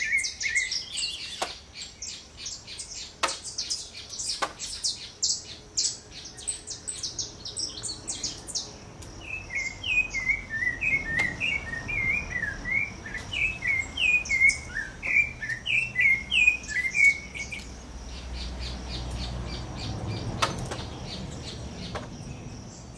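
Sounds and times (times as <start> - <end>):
thrush singing whistled phrases: 9.3 - 17.6.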